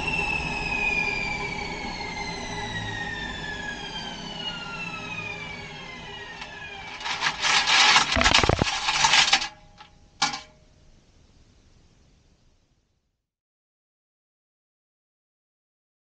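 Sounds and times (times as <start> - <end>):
washing machine motor whine: 0.0 - 9.5
rough rasping rushing noise: 6.4 - 9.6.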